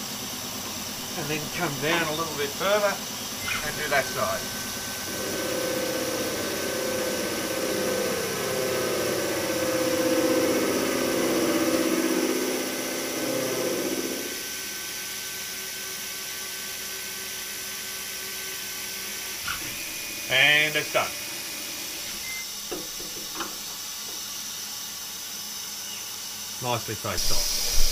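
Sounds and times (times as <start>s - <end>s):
spindle hum: 0.0s - 14.4s, 19.4s - 23.8s, 27.2s - 27.9s
milling cutter cutting metal: 0.7s - 14.5s, 19.3s - 24.3s, 27.2s - 27.9s
hiss of air and coolant: 14.3s - 27.9s.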